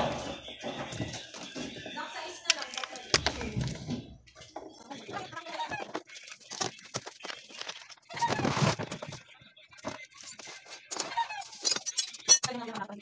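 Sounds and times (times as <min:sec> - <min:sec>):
plastic cabinet knocking and scraping: 0:03.1 - 0:04.3.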